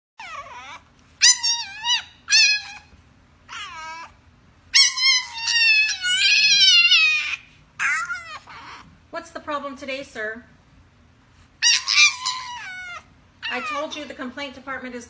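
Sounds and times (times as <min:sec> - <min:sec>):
puppy howling: 0:00.2 - 0:02.9, 0:03.5 - 0:08.9, 0:11.6 - 0:14.2.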